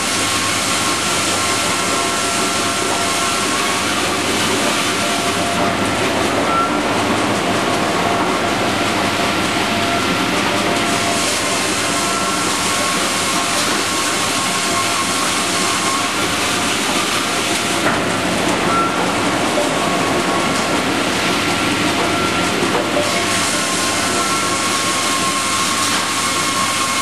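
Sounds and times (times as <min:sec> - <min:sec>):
sawmill machinery clatter: 0:00.0 - 0:27.0.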